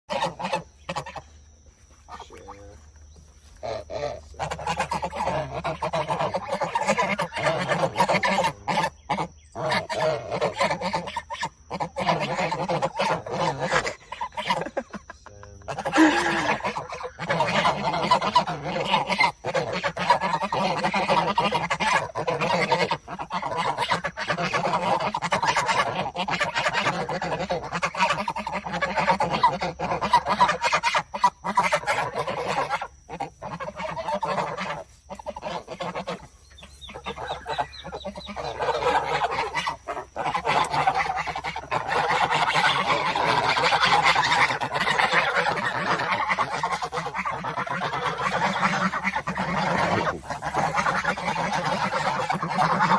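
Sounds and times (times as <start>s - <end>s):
geese honking: 0.0s - 52.9s.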